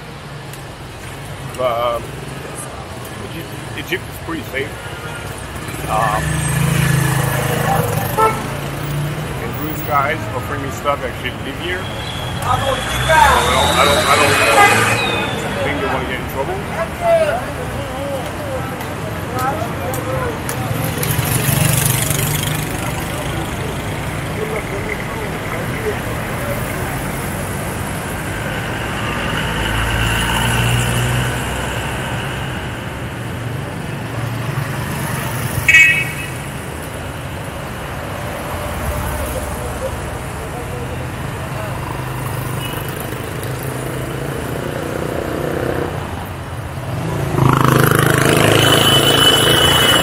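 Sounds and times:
thin high tone: 11.8 - 16.2
vehicle engine passing by: 12.5 - 16.4.

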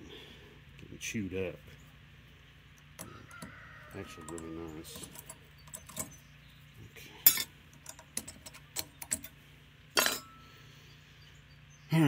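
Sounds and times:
metallic clicks and clinks: 4.2 - 6.2, 7.2 - 9.4.

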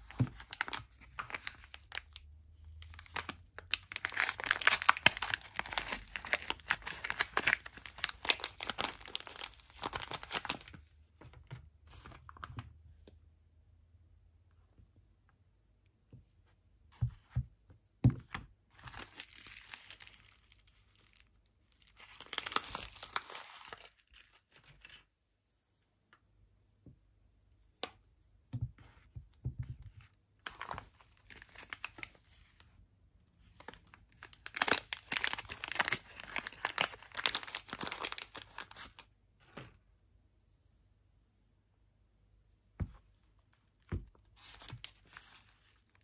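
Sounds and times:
wrappers crinkling: 2.9 - 10.7, 18.9 - 24.6, 33.6 - 39.0.

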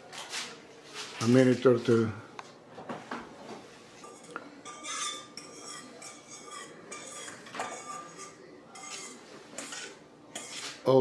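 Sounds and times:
metal bowl and utensil clinking: 4.0 - 10.8.

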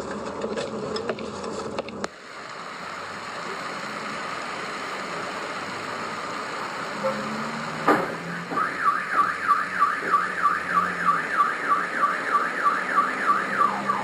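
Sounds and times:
thump: 7.8 - 8.6
car alarm sweeping tone: 8.3 - 14.0.

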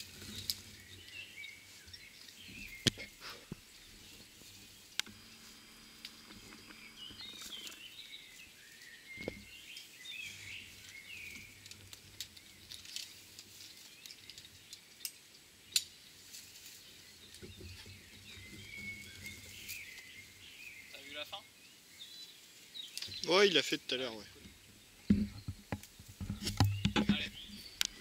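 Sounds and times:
birds chirping: 0.0 - 12.8, 13.8 - 28.0
sharp clicks: 5.0 - 7.8.

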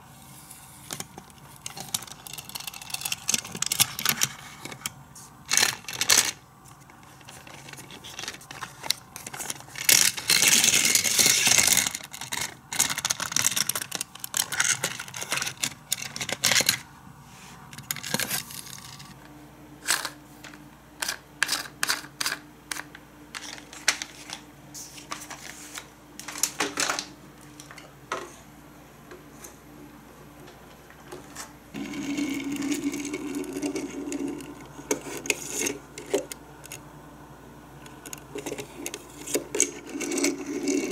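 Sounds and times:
plastic toy pieces clattering: 1.0 - 4.9, 5.5 - 6.4, 7.2 - 16.8, 17.8 - 19.1, 21.0 - 24.3.

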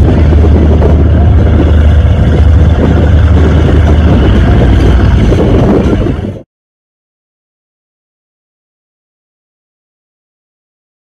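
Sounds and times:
powerboat engines rumbling: 0.0 - 6.4
rush of boat wakes: 0.0 - 6.4.

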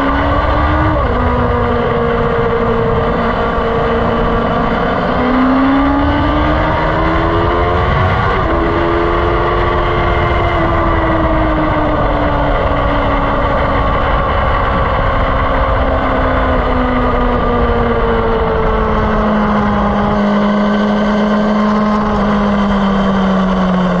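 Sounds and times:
wind rumble on microphone: 0.0 - 24.0
vehicle engine slowing down: 9.5 - 24.0.

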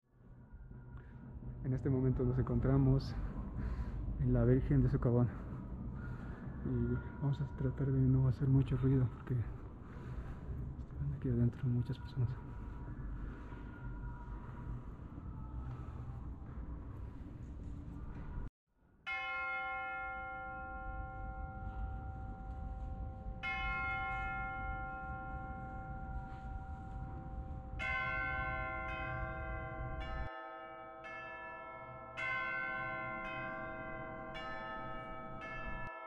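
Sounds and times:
low background rumble: 0.1 - 7.8, 8.6 - 18.5, 20.8 - 30.1
church bells ringing: 19.1 - 36.0.

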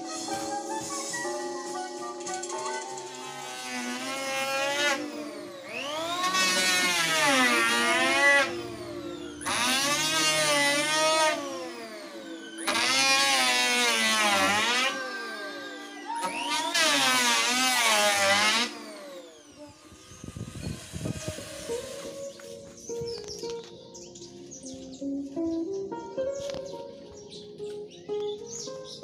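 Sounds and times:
electric planer shaving wood: 0.0 - 23.6.

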